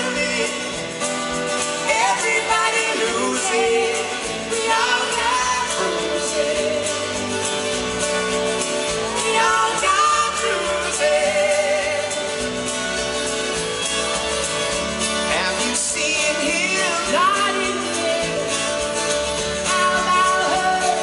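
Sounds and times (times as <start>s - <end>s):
woman singing: 0.0s - 0.9s, 1.8s - 7.4s, 9.1s - 12.5s, 15.9s - 18.9s, 19.6s - 21.0s
man singing: 0.0s - 1.2s, 1.8s - 7.2s, 9.2s - 12.4s, 15.2s - 21.0s
bass guitar: 0.0s - 21.0s
drums: 0.0s - 21.0s.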